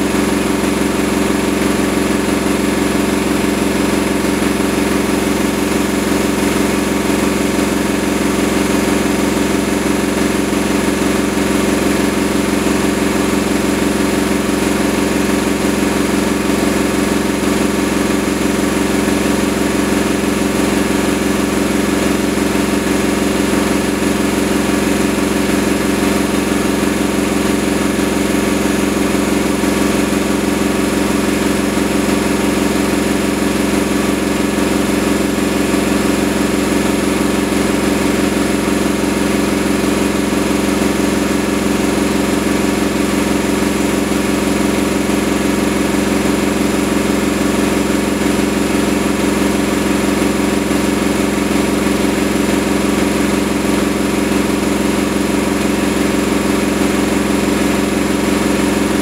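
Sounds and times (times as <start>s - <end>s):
washing machine spinning: 0.0s - 59.0s.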